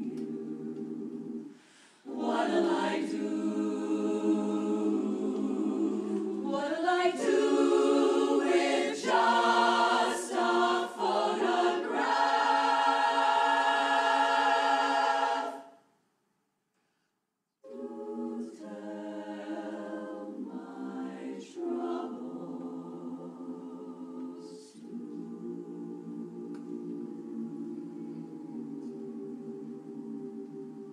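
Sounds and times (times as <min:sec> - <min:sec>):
women's chorus singing a cappella: 0:00.0 - 0:15.8, 0:17.6 - 0:30.9.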